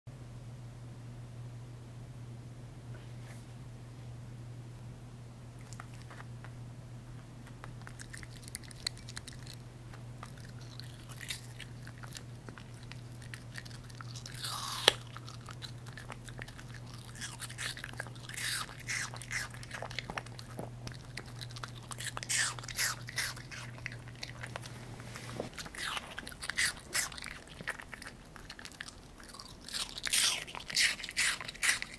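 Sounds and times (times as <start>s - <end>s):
dog crunching apple: 5.6s - 6.3s, 7.4s - 31.9s
dog mouth clicks: 7.6s - 9.6s.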